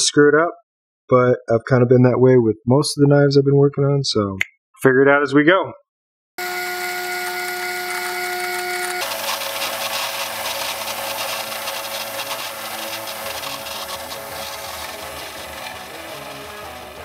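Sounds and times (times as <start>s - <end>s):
band saw cutting wood: 6.4s - 17.0s
drill press motor whine: 6.4s - 17.0s.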